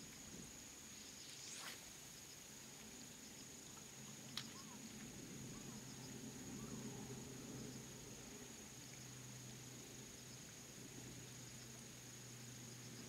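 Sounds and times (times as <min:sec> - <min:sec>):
high-pitched insect whine: 0:00.0 - 0:13.0
fishing rod cast swish: 0:01.2 - 0:02.0.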